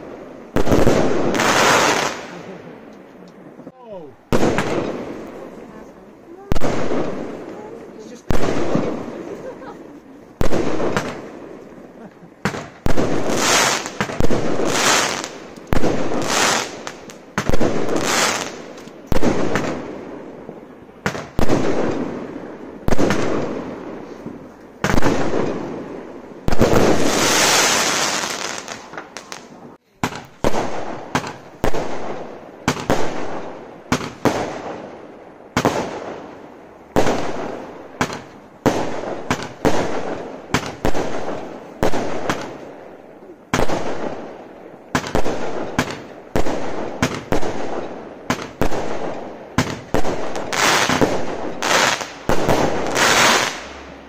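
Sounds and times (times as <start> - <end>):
firework hissing crackle: 0.0 - 2.7, 12.4 - 19.9, 26.4 - 34.7, 48.4 - 53.9
firework bangs: 0.0 - 2.9, 4.3 - 54.0.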